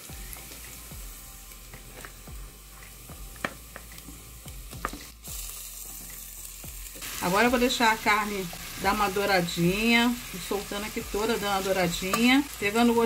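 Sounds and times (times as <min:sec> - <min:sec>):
onion sizzling in oil: 0:00.0 - 0:13.0.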